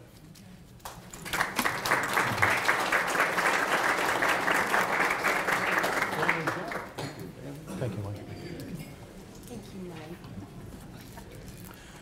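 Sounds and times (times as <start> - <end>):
audience applauding: 1.2 - 7.1.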